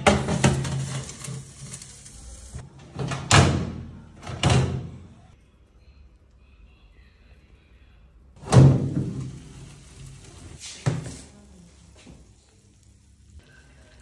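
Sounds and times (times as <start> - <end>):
metal oven door banging shut: 0.0 - 1.4, 2.9 - 4.9, 8.4 - 9.4
metal tray scraping oven rack: 0.0 - 2.6.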